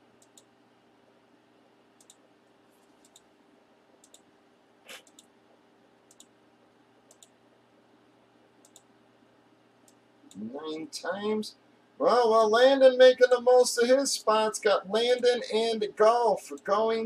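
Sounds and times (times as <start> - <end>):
computer mouse clicks: 0.2 - 0.5, 2.0 - 3.3, 4.0 - 4.3, 4.9 - 5.3, 6.1 - 6.3, 7.1 - 7.4, 8.6 - 8.9.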